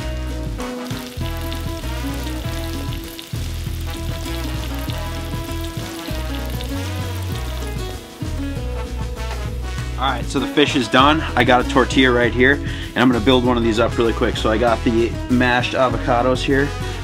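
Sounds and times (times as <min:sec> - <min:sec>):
background music: 0:00.0 - 0:17.0
fish fillets sizzling in oil: 0:00.5 - 0:10.0.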